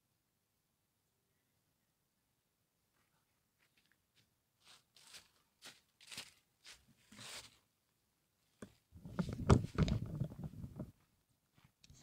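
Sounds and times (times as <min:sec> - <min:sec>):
footsteps crunching dry leaves: 0:04.6 - 0:07.6
camera handling bumps and rustling: 0:09.0 - 0:10.9.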